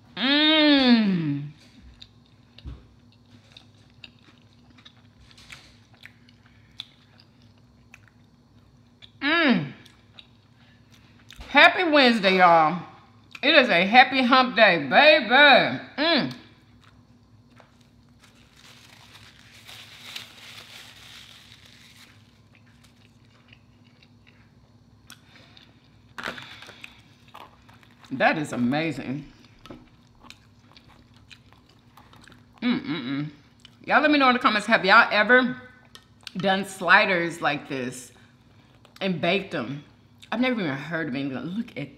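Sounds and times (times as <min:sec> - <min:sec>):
chewing food: 0:01.6 - 0:09.2, 0:09.8 - 0:11.5, 0:16.6 - 0:20.2, 0:20.8 - 0:28.2, 0:29.4 - 0:32.6, 0:33.5 - 0:33.9.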